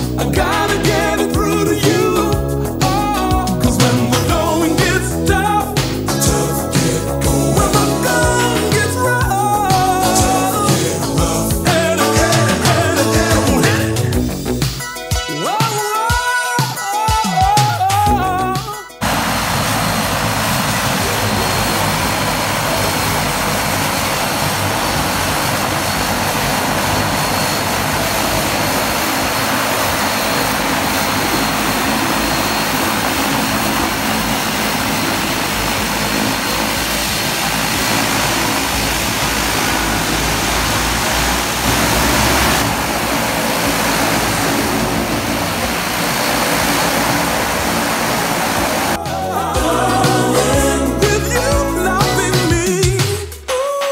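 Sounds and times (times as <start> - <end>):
turboprop engines running: 0.0 - 14.8, 18.0 - 52.4
faint high whine: 19.0 - 49.0.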